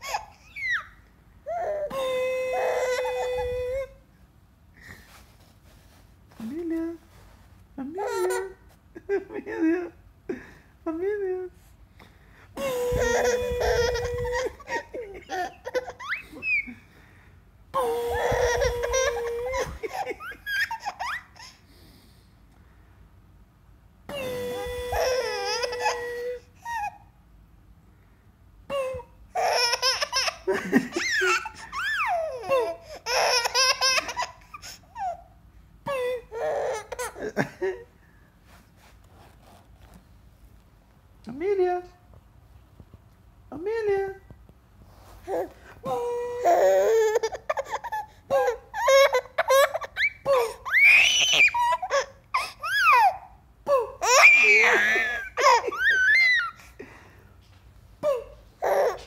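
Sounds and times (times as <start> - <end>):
baby laughing and squealing: 0.0 - 3.9, 12.6 - 16.8, 17.8 - 21.6, 24.1 - 27.0, 28.8 - 35.2, 45.3 - 56.7, 58.0 - 59.0.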